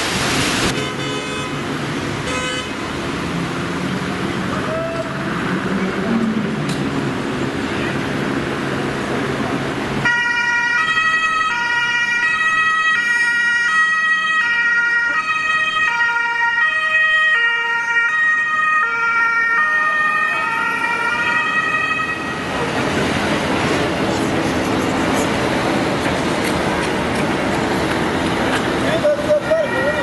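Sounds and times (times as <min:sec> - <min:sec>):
traffic noise: 0:00.0 - 0:30.0
two-tone ambulance siren: 0:10.0 - 0:22.6, 0:29.3 - 0:30.0.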